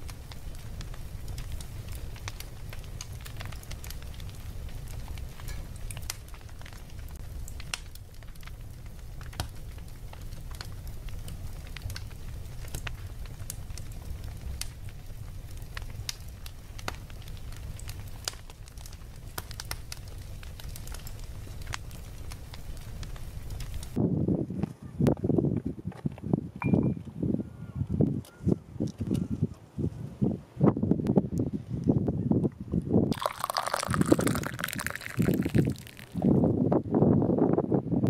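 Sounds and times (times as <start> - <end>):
charcoal fire crackling: 0.0 - 24.0, 33.1 - 36.7.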